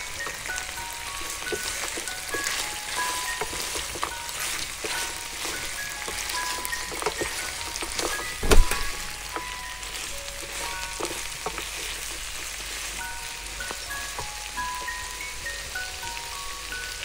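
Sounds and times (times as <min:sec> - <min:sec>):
wooden spoon scraping pan: 0:00.0 - 0:14.2
meat and onion sizzling: 0:00.0 - 0:17.0.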